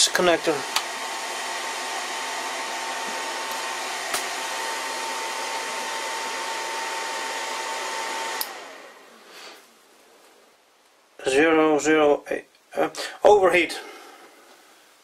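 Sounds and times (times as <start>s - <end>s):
cooling fan rushing: 0.0s - 9.2s.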